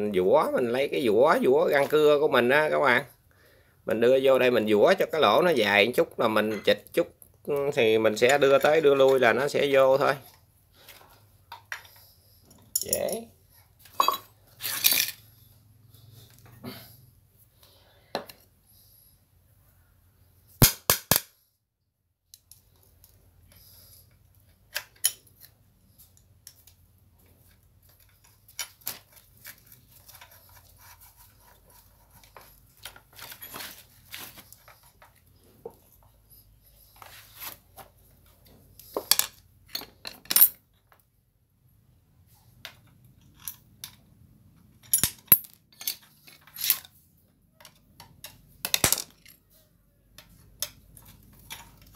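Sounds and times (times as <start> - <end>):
metallic clicks and clinks: 12.5 - 13.2, 44.8 - 46.9.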